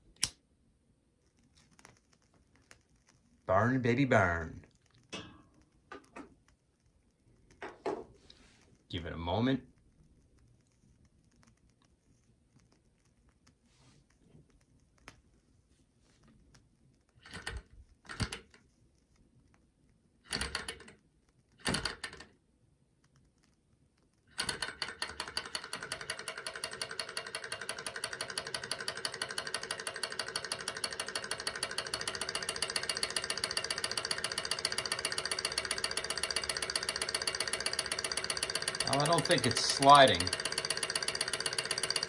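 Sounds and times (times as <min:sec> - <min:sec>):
engine mechanical clatter: 0:24.5 - 0:42.0.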